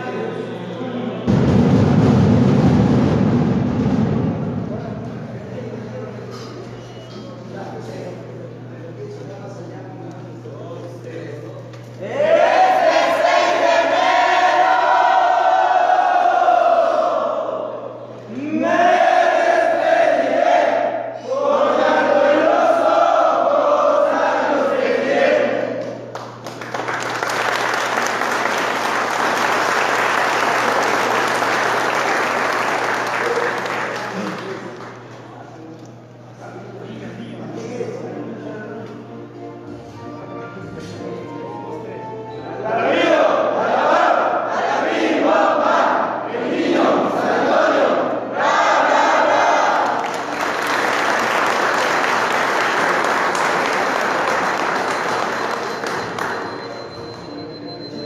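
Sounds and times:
crowd chanting: 12.0 - 25.8, 42.7 - 50.1
large crowd clapping: 25.8 - 35.3, 49.7 - 57.0.

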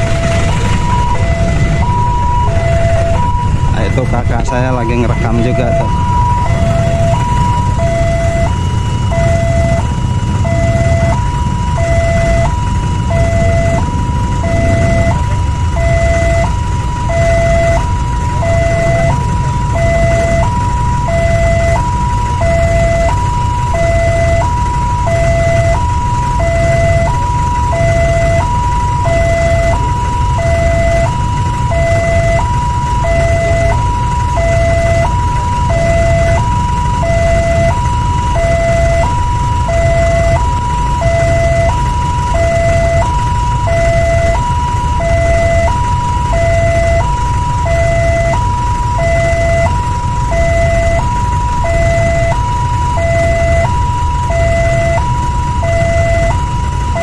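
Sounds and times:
steady low rumble: 0.0 - 57.0
two-tone level crossing alarm: 0.0 - 57.0.

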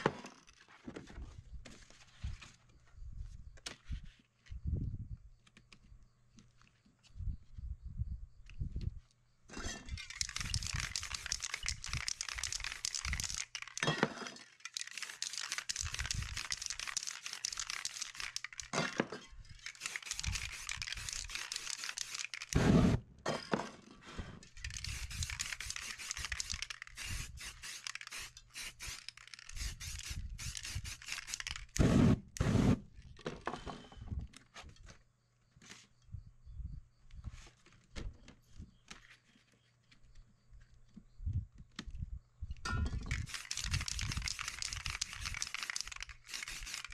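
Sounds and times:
spray cans hissing: 10.0 - 13.9, 14.5 - 18.8, 19.6 - 23.0, 24.5 - 32.8, 43.1 - 46.9.

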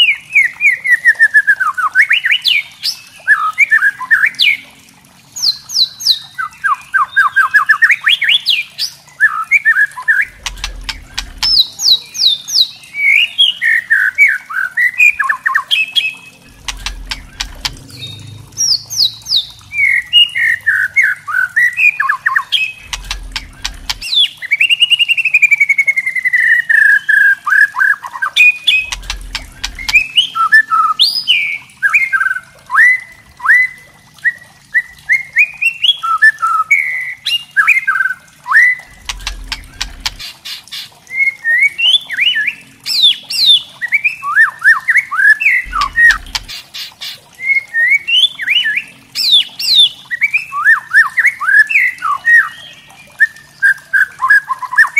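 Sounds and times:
songbird whistling song: 5.4 - 54.9
bird clicking rattles: 16.5 - 19.8, 22.9 - 24.1, 28.7 - 30.0, 38.9 - 40.4, 45.7 - 46.7.

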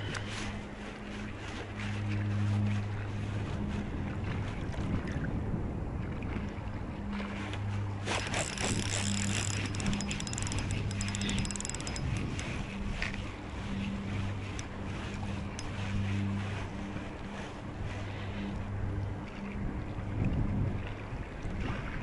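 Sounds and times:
faint reel whine: 7.2 - 19.6
fishing reel clicking: 8.1 - 13.2.

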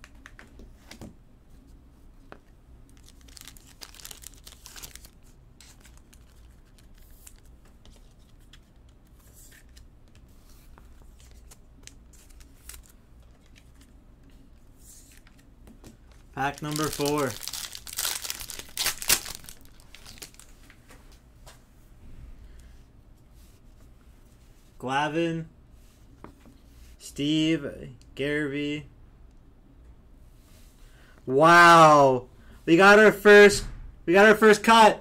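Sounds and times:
packaging crinkling and rustling: 2.9 - 8.7, 11.2 - 13.9, 16.1 - 20.8.

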